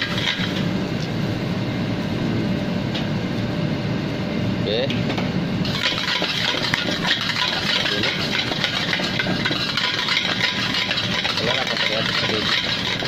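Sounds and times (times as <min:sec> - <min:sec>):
spatula scraping wok: 0:00.0 - 0:00.7, 0:05.6 - 0:13.0
gas burner rushing: 0:00.0 - 0:01.5, 0:05.1 - 0:13.0
food sizzling in a wok: 0:05.6 - 0:13.0.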